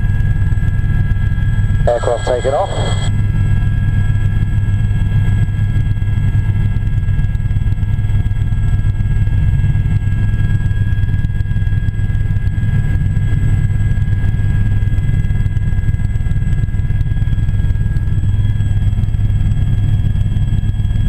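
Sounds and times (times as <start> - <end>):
helicopter drone from inside cabin: 0.0 - 21.0
high-pitched whines: 1.9 - 3.1.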